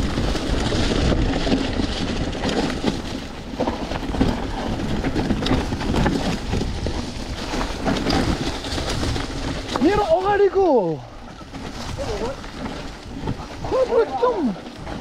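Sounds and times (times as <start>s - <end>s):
bike knocks and rattles: 0.0s - 10.4s
bike tyres rolling on dirt: 0.0s - 15.0s
wind rumbling on microphone: 0.0s - 15.0s.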